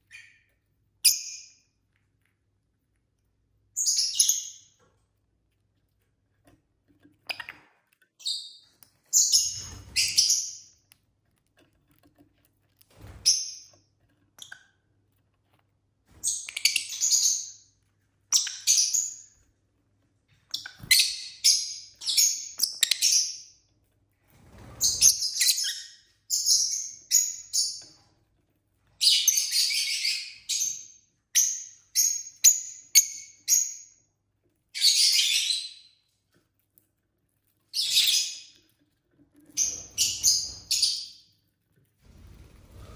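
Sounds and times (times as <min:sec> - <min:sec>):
lovebirds chirping: 0:03.7 - 0:04.8, 0:07.2 - 0:10.9, 0:16.1 - 0:19.4, 0:20.4 - 0:23.6, 0:37.7 - 0:38.7, 0:39.5 - 0:41.3.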